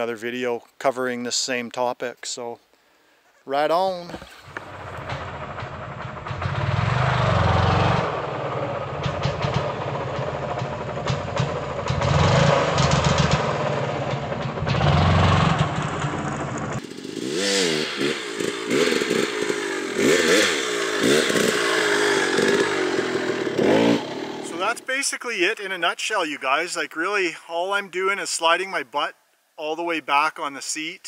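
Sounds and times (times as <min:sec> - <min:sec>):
dirt bike engine revving: 0:04.1 - 0:24.9.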